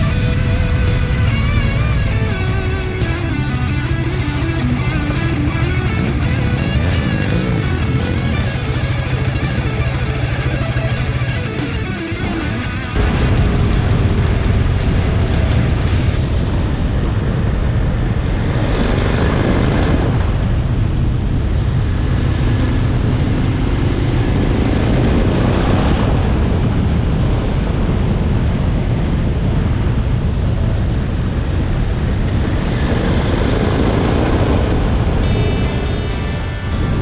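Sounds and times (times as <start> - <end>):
motorcycle engine running: 0.0 - 17.7
wind rumble on microphone: 0.0 - 37.0.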